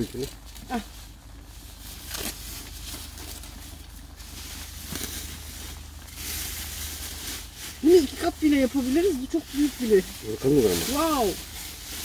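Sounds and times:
plastic sheeting crinkling: 0:00.0 - 0:12.0.

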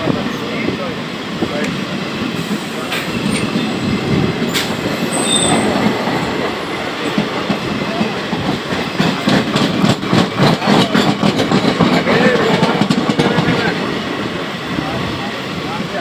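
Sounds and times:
trains passing at speed: 0:00.0 - 0:16.0
wheels clacking over rail joints: 0:02.8 - 0:14.2.

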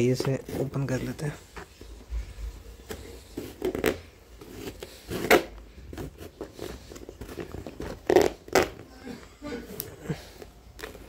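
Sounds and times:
knife cutting packing tape: 0:03.4 - 0:08.8.

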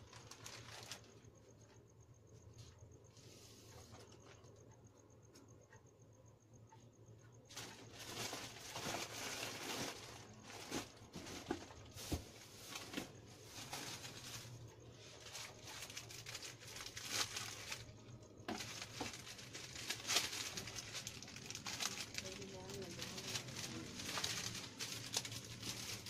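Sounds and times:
plastic packets crinkling: 0:00.0 - 0:01.2, 0:07.5 - 0:26.0.

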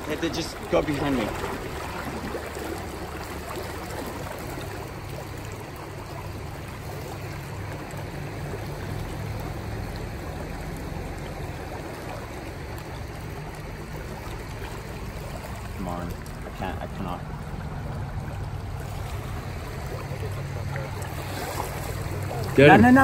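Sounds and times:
river water flowing over rocks: 0:00.0 - 0:23.0.

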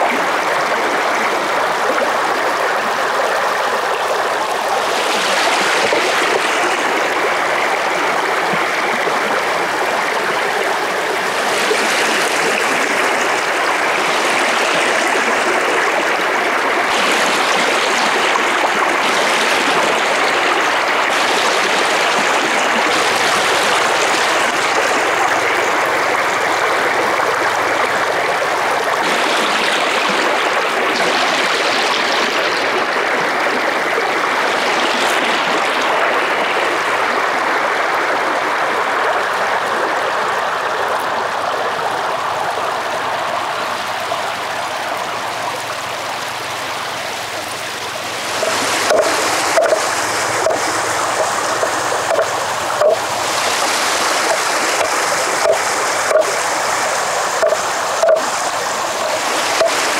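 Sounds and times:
running water: 0:00.0 - 0:59.9
clicks: 0:57.4 - 0:58.3.

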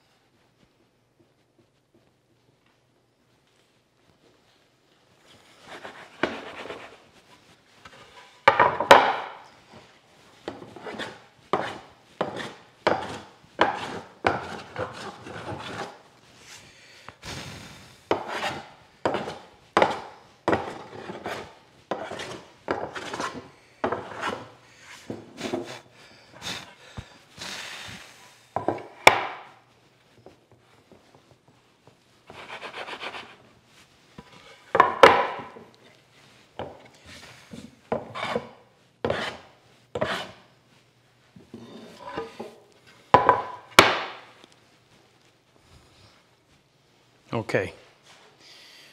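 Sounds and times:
wooden board scraping on bench: 0:10.5 - 0:16.0, 0:18.1 - 0:25.7, 0:37.5 - 0:40.4, 0:41.5 - 0:42.6.

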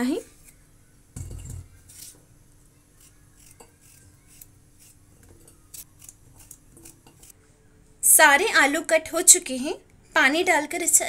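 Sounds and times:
knife cutting potato: 0:03.0 - 0:07.4.

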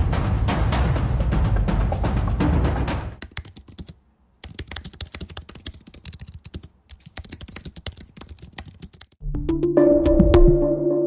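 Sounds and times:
rapid typing on keyboard: 0:03.2 - 0:09.2.

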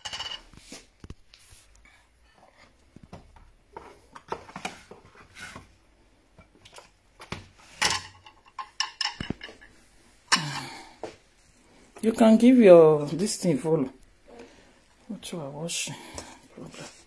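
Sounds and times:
kitchen utensils clinking: 0:00.0 - 0:00.5, 0:07.7 - 0:10.8.

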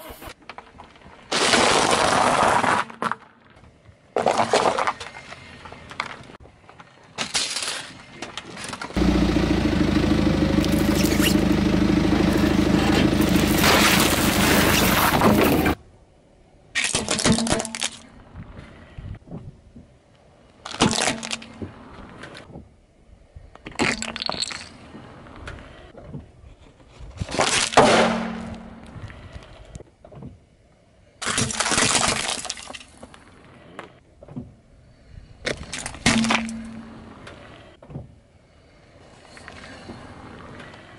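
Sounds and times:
car tyre crushing toys: 0:00.6 - 0:03.3, 0:13.0 - 0:15.8
loud cracking crunches: 0:01.3 - 0:03.2, 0:12.9 - 0:15.8.

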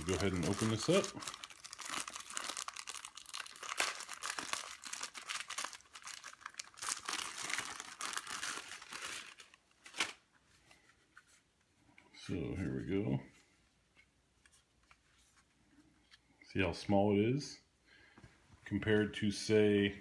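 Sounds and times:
plastic wrapping crinkling and tearing: 0:00.0 - 0:10.3.

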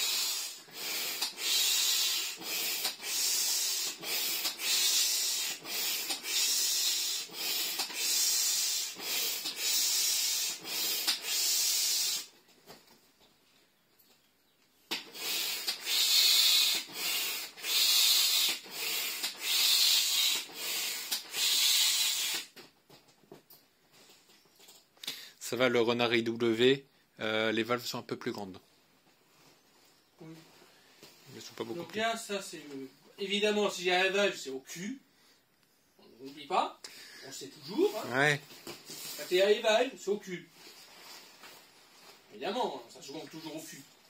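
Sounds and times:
hand air pump hissing strokes: 0:00.0 - 0:12.4, 0:14.9 - 0:22.6, 0:38.8 - 0:39.7.

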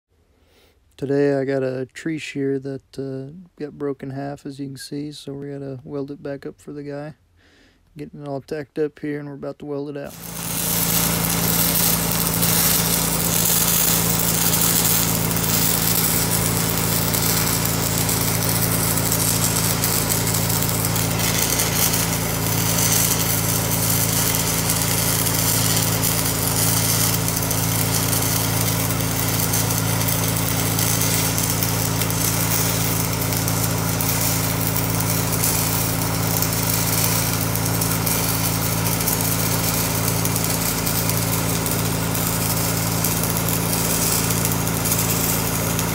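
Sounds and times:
crackling welding arc: 0:10.0 - 0:45.9.

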